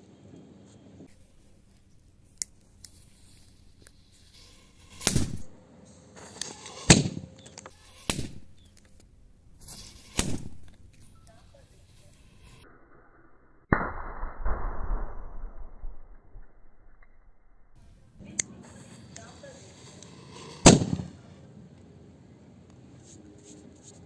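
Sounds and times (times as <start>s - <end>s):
firecracker cannon bangs: 20.6s - 21.2s.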